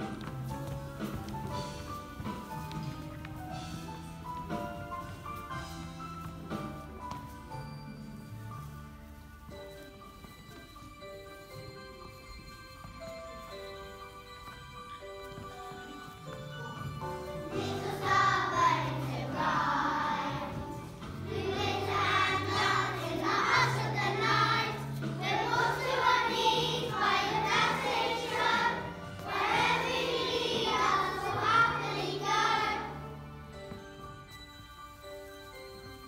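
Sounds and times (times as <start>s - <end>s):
children singing: 17.4s - 33.0s.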